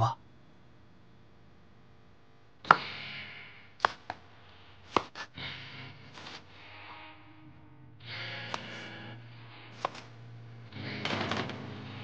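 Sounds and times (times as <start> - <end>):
knife chopping on wooden board: 2.7 - 2.9, 3.8 - 4.2, 4.9 - 5.3.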